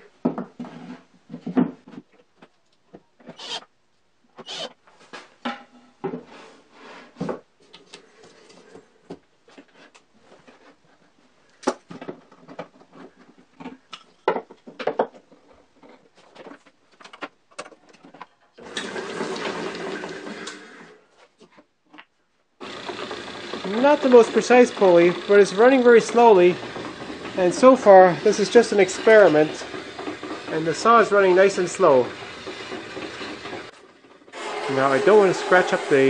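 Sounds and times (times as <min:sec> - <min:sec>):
knocks and clunks of metal and wood: 0:00.2 - 0:03.4, 0:05.1 - 0:06.3, 0:11.6 - 0:18.5, 0:26.6 - 0:27.8, 0:29.0 - 0:30.6, 0:32.1 - 0:34.6
electric motor running: 0:03.4 - 0:03.6, 0:04.5 - 0:04.7, 0:22.6 - 0:33.7, 0:34.3 - 0:36.0.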